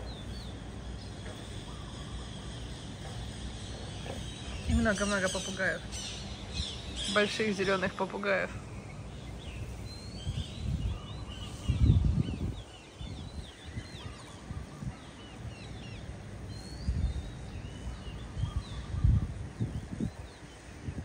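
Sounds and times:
low rumbles on microphone: 8.6 - 21.0.

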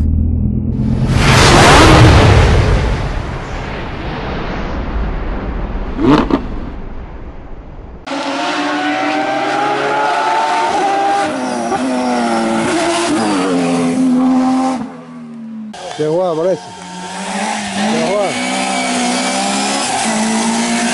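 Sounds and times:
low rumble: 0.0 - 8.1.

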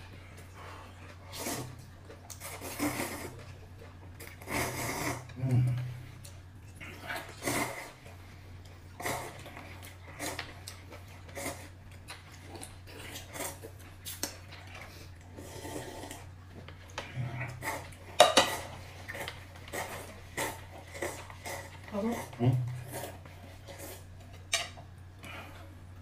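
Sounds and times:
chewing: 0.1 - 25.8
slurping: 0.4 - 8.3, 8.9 - 24.5.

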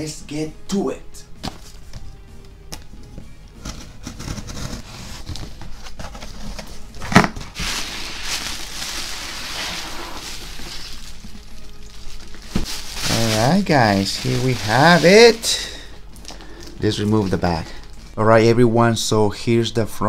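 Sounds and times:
background music: 0.0 - 20.0
packaging rustling and clicking: 3.1 - 15.4, 16.2 - 18.2
wrapping crinkling: 5.0 - 18.4.

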